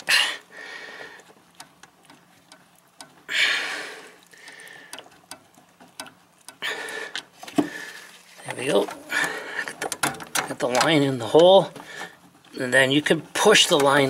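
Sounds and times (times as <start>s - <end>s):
plastic line clicking and tapping: 4.2s - 7.7s, 8.5s - 12.4s.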